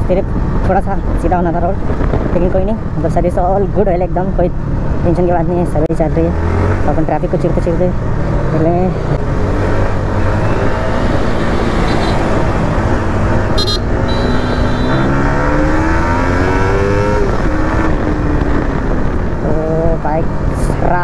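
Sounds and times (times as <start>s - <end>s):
motorcycle engine accelerating: 6.1s - 19.4s
wind rush: 7.8s - 21.0s.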